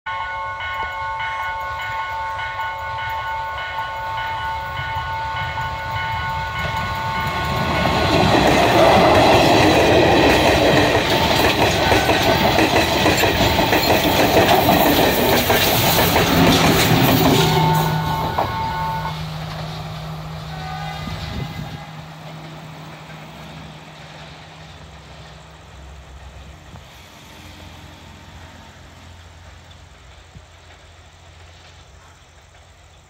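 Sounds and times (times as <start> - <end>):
diesel train approaching: 0.1 - 33.0
wheels clattering on track: 0.8 - 28.1, 28.9 - 33.0.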